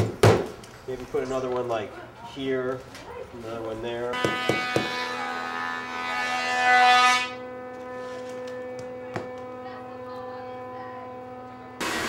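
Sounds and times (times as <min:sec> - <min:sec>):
power tool motor whining: 0:04.2 - 0:12.0.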